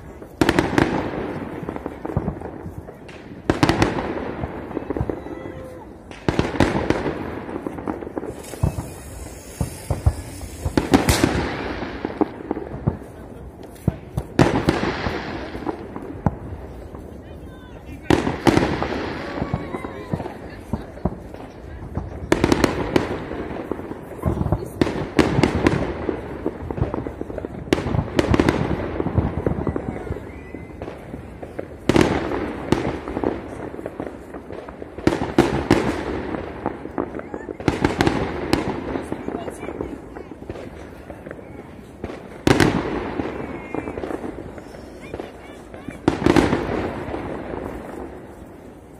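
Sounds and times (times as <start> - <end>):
fireworks bangs and pops: 0.0 - 48.9.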